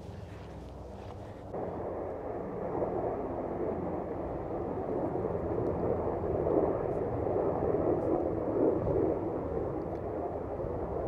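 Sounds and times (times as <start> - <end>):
strong wind buffeting microphone: 0.0 - 2.0, 5.1 - 11.0.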